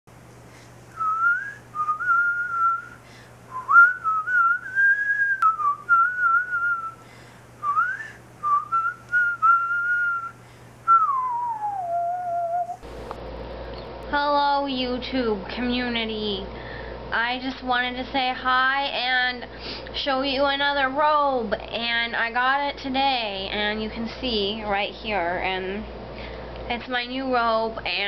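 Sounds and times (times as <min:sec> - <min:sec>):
person whistling a tune: 0:00.9 - 0:07.0, 0:07.6 - 0:10.3, 0:10.9 - 0:12.8.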